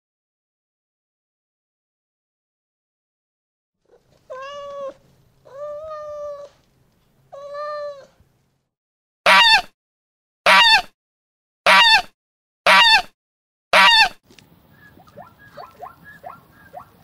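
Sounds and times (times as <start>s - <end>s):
cat meowing: 3.9s - 6.6s, 7.3s - 8.2s
goose honking: 13.7s - 14.1s.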